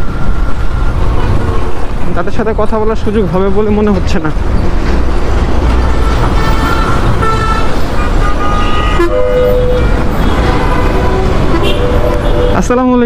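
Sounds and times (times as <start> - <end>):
rumble of heavy road traffic: 0.0 - 13.0
vehicle horns honking: 5.8 - 12.7.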